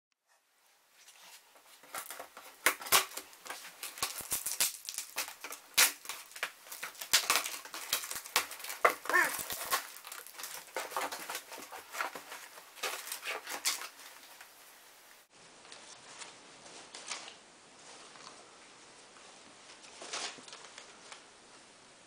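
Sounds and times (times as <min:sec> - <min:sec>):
cardboard scraping and crinkling: 0:01.0 - 0:14.6, 0:19.7 - 0:21.1
packing tape tearing: 0:01.8 - 0:14.5.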